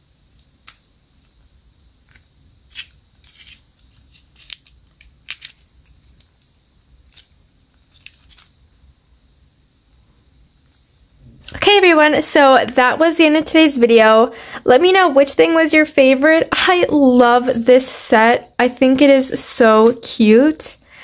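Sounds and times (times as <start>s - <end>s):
plastic charm clicking and crinkling: 2.1s - 6.5s.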